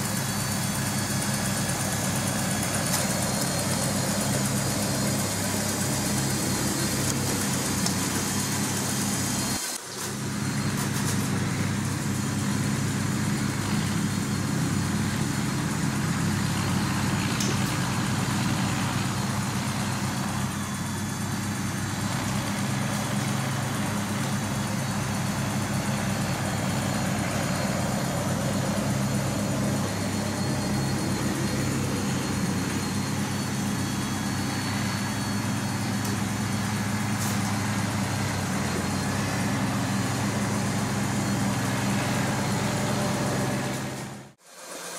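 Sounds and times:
model tractor motor whirring: 0.0s - 44.9s.

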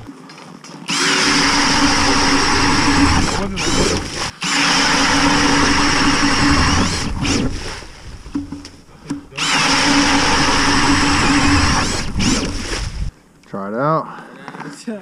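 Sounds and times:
drill motor whine: 0.9s - 7.7s, 9.3s - 13.1s
auger blades grinding ice: 0.9s - 8.6s, 9.3s - 13.1s.

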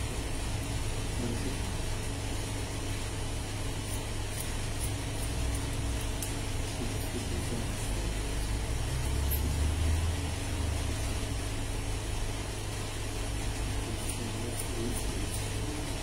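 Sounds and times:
steady low rumble: 0.0s - 16.0s
scissors snipping: 3.9s - 6.4s.

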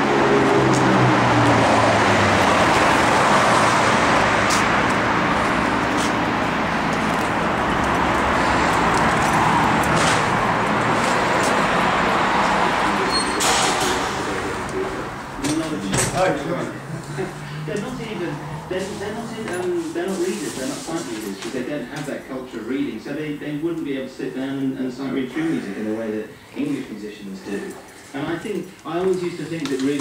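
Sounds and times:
vehicle engine hum: 0.0s - 21.4s
road traffic noise: 0.0s - 30.0s.

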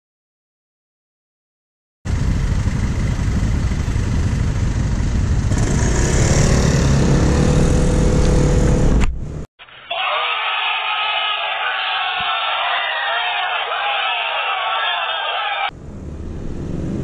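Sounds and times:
road noise: 2.1s - 9.4s, 12.7s - 17.0s
scooter engine in traffic: 2.1s - 9.4s, 15.7s - 17.0s
crowd noise: 9.6s - 15.7s.

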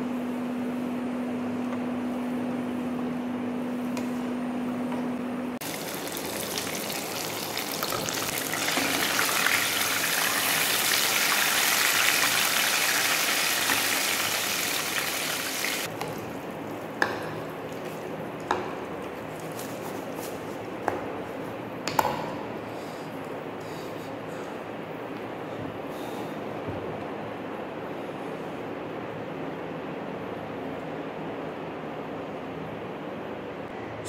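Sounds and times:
food sizzling in hot oil: 5.6s - 15.9s.

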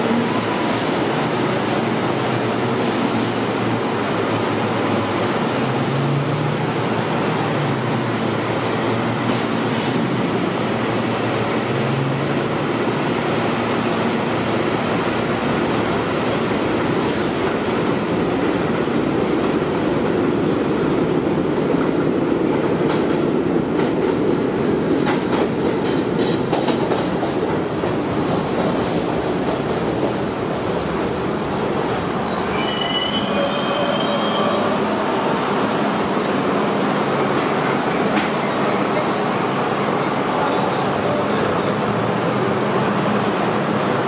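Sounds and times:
train wheels rumbling on track: 0.0s - 44.0s
train brakes squealing: 32.2s - 35.0s.

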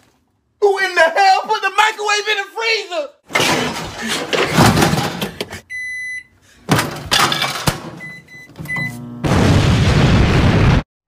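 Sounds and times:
microwave banging and clattering: 3.3s - 5.5s, 6.7s - 8.8s
short beeps: 8.0s - 9.0s
loud explosion: 9.2s - 10.9s.

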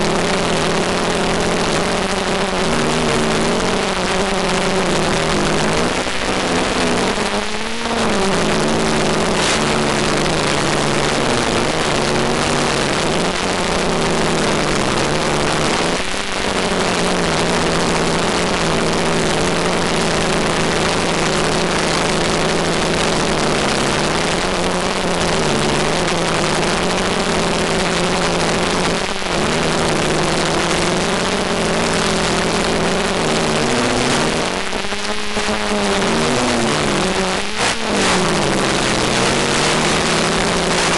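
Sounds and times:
constant hiss: 0.0s - 40.9s
multicopter motors humming: 0.0s - 40.9s.

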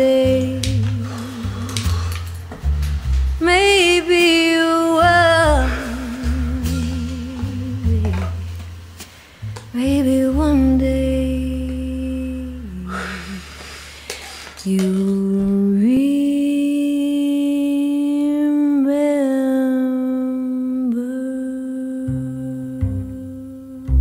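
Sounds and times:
voice humming long notes: 0.0s - 2.6s, 3.5s - 8.5s
low sustained tones: 0.0s - 13.5s.

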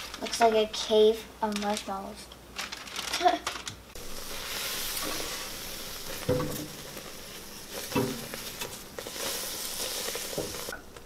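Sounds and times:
marshmallows sizzling in a pot: 3.9s - 11.0s
spatula stirring: 4.0s - 10.8s.

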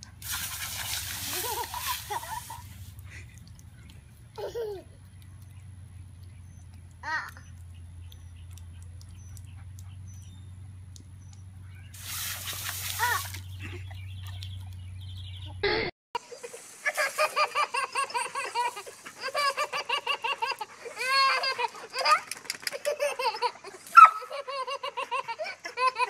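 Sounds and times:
low steady hum: 0.0s - 15.9s
baby laughing: 4.4s - 5.0s, 15.6s - 26.0s
short hiss: 12.0s - 13.4s, 16.2s - 17.8s.

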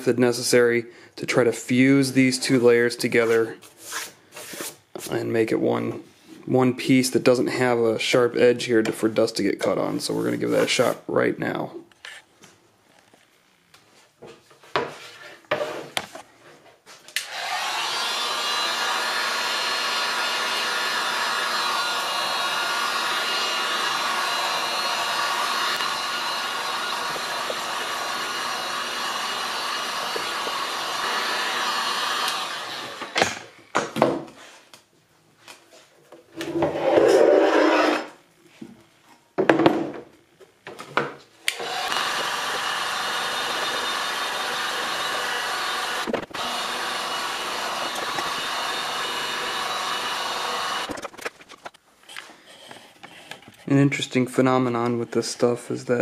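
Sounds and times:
heat gun blowing air: 17.2s - 33.4s, 41.5s - 51.0s.

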